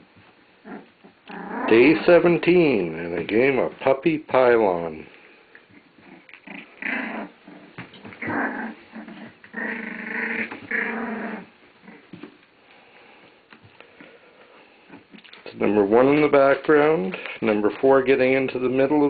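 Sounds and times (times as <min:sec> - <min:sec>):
puppies play-growling: 0:00.6 - 0:02.2, 0:05.5 - 0:12.6, 0:13.3 - 0:15.5.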